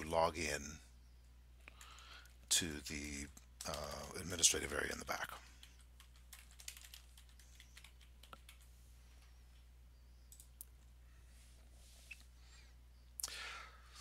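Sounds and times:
faint keyboard typing: 0:01.6 - 0:11.0.

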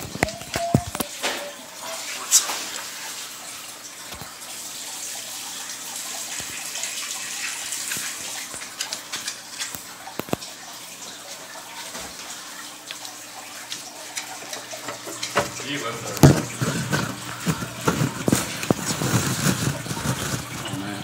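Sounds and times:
aquarium water splashing: 0:00.0 - 0:21.0.

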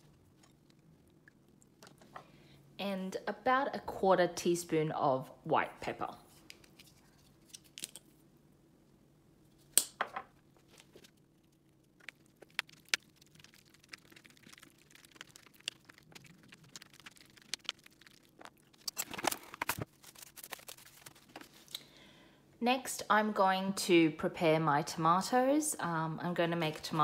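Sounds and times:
cling wrap crinkling: 0:10.6 - 0:21.7
utensil stirring in plastic container: 0:12.0 - 0:19.4.

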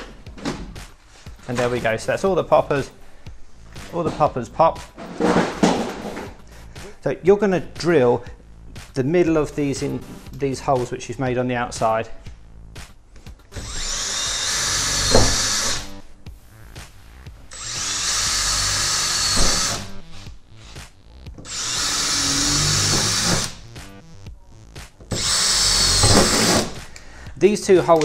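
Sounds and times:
drill drilling into sheet metal: 0:13.5 - 0:15.9, 0:17.5 - 0:19.9, 0:21.5 - 0:23.6, 0:25.1 - 0:26.8.

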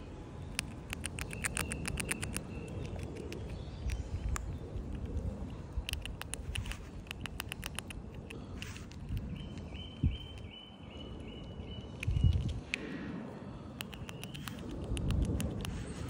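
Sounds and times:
squirrel crunching dry noodles: 0:00.4 - 0:10.5, 0:13.7 - 0:16.0.

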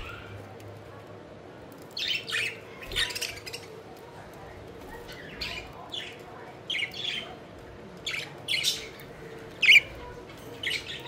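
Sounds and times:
budgerigars chirping and squawking: 0:00.0 - 0:00.4, 0:09.6 - 0:10.0.

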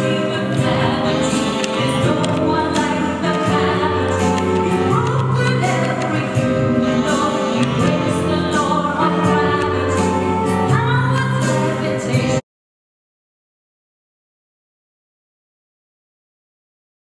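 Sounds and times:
music with singing over loudspeakers: 0:00.0 - 0:12.4.

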